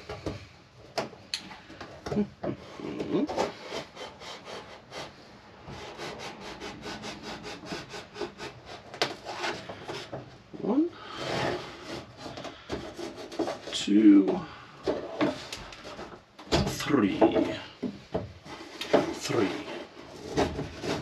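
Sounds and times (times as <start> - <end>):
metal scraping against wood: 2.6 - 21.0
rasping strokes: 3.2 - 10.2, 18.4 - 21.0.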